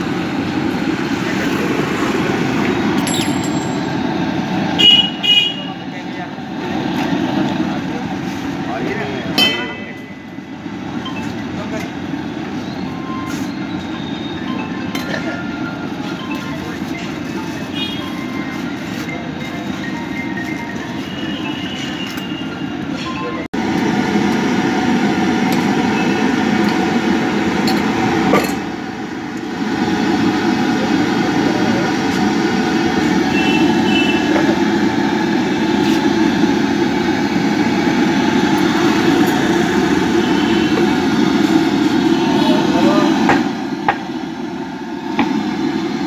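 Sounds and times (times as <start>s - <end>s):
street traffic noise: 0.0s - 46.0s
indistinct voices: 38.6s - 43.5s.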